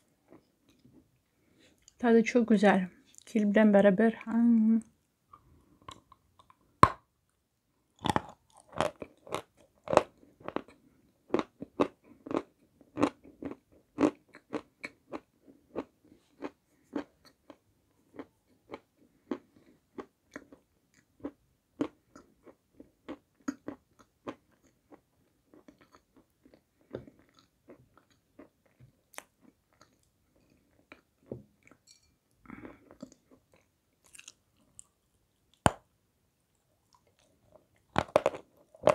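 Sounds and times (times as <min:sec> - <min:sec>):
crunchy chewing: 0:08.0 - 0:35.0.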